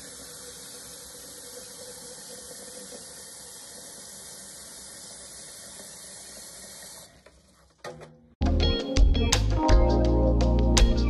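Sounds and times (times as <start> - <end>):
faucet water filling kettle: 0.0 - 7.6.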